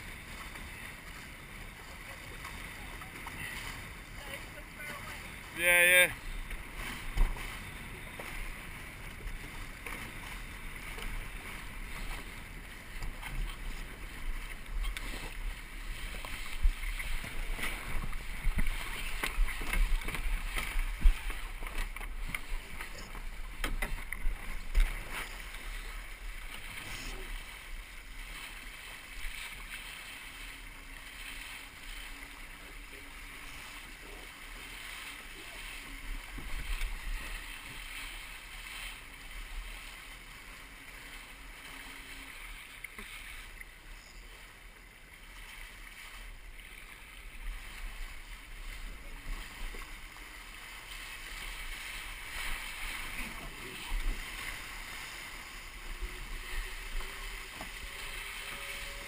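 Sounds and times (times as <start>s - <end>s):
wind rumbling on microphone: 0.0s - 32.0s, 46.3s - 59.0s
water rushing along a hull: 0.0s - 59.0s.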